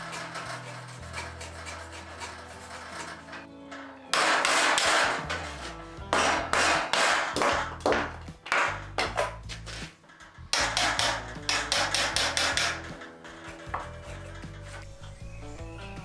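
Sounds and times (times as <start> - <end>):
background music: 0.0 - 16.0
hammer striking chisel: 4.1 - 5.4, 6.0 - 9.4, 10.5 - 12.9.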